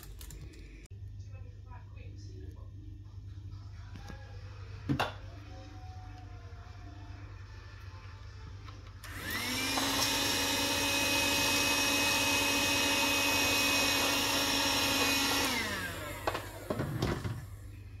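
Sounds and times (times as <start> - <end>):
handheld vacuum cleaner whining: 9.0 - 17.6.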